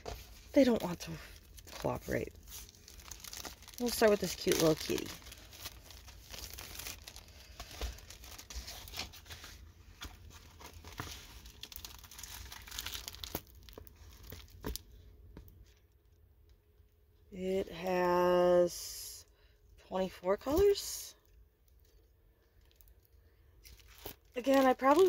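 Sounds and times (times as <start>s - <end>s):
plastic film crinkling: 0.0s - 15.0s, 22.6s - 25.0s.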